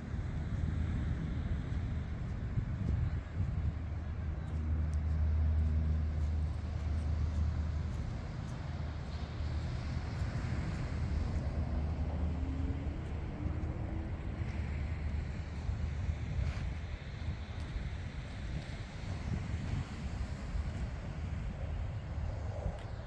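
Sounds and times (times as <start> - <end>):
wind rumbling on microphone: 0.0 - 23.0
ocean surf: 8.3 - 16.2.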